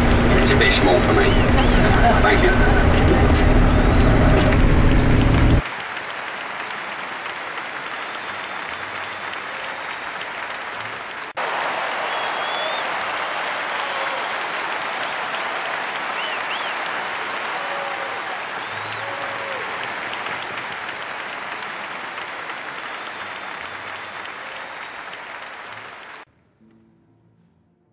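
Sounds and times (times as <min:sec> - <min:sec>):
crowd applause: 0:00.0 - 0:26.3
whistles: 0:00.6 - 0:01.8, 0:07.9 - 0:10.0, 0:11.4 - 0:20.6, 0:22.7 - 0:24.9.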